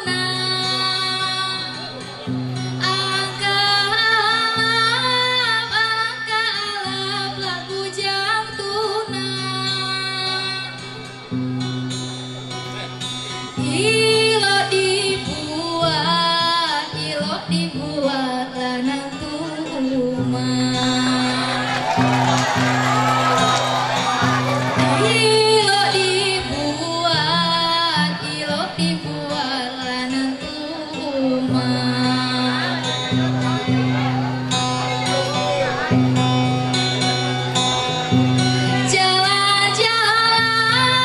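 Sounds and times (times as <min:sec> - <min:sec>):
girl singing through a microphone: 0:00.0 - 0:10.9, 0:13.5 - 0:21.6, 0:25.0 - 0:33.1, 0:38.7 - 0:41.0
acoustic guitar: 0:00.0 - 0:41.0.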